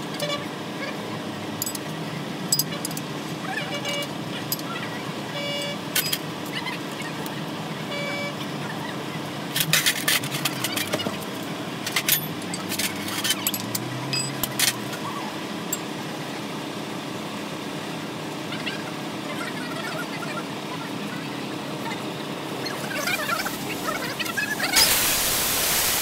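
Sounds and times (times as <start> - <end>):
traffic hum: 0.0 - 26.0
metallic clinks of tools: 1.6 - 1.9, 2.5 - 3.0, 12.0 - 14.8.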